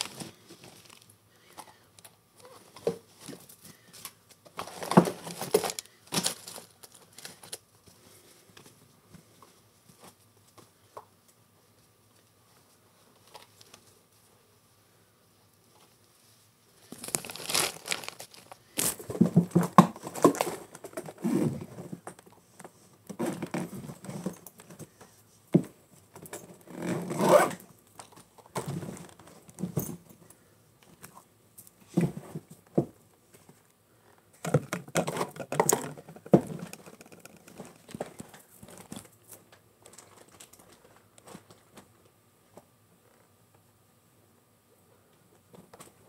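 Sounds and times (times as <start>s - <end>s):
cloth rustling: 16.9s - 19.0s.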